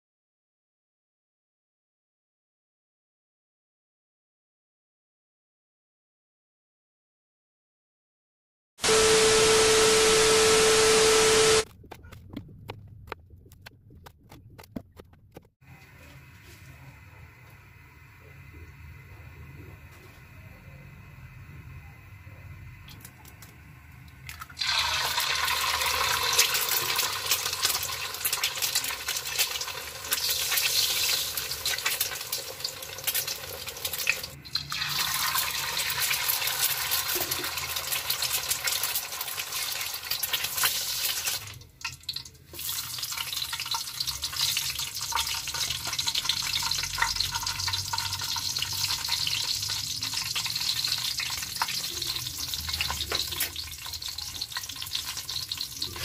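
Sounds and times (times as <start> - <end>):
eggplant frying in oil: 22.8 - 56.0
egg sizzling in hot oil: 24.4 - 56.0.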